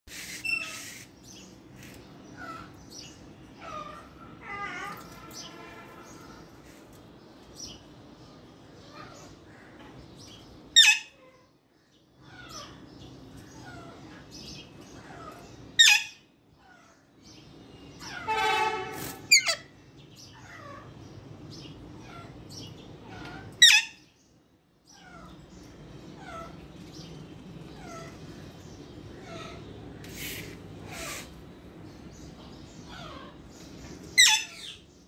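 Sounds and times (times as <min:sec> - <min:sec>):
parakeet screeches: 0:00.1 - 0:01.2, 0:18.0 - 0:19.7, 0:23.0 - 0:24.1, 0:29.2 - 0:31.4, 0:34.2 - 0:34.8
harsh parakeet call: 0:00.1 - 0:01.5, 0:10.8 - 0:11.5, 0:15.0 - 0:17.0, 0:18.0 - 0:19.7, 0:23.0 - 0:24.1, 0:27.7 - 0:31.4, 0:34.1 - 0:34.8.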